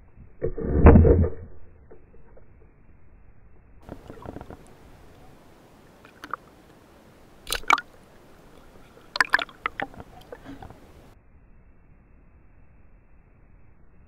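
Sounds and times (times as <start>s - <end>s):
water splashing: 3.8s - 11.2s.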